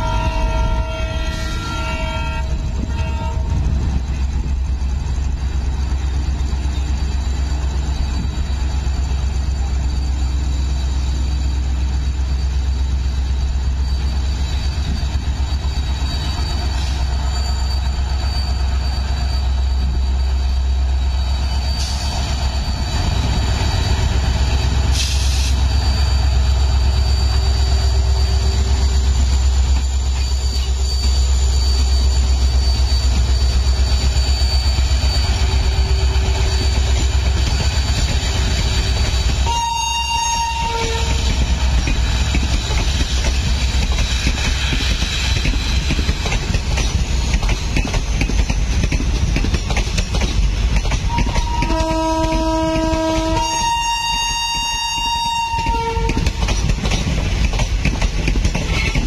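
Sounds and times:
diesel locomotive engine rumbling: 0.0 - 59.0
air brake hisses: 24.9 - 25.7.

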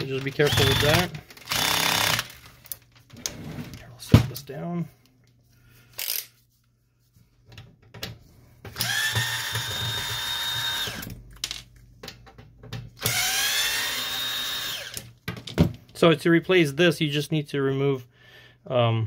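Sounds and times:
cordless drill whining: 0.3 - 2.4, 8.7 - 11.1, 13.0 - 15.0.

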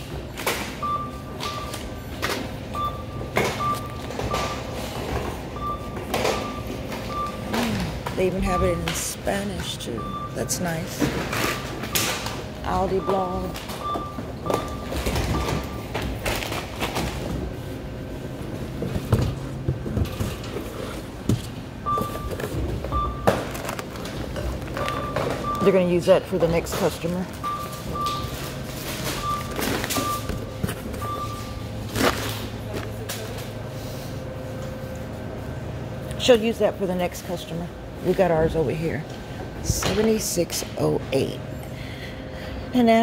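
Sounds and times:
supermarket checkout background: 0.0 - 43.0
barcode scanner beeps: 0.7 - 16.0, 21.8 - 23.4, 24.8 - 31.8.

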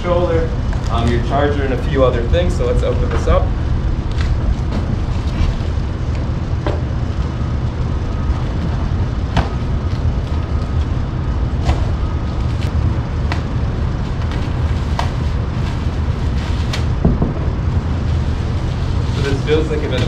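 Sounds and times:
steady low rumble: 0.0 - 20.0.

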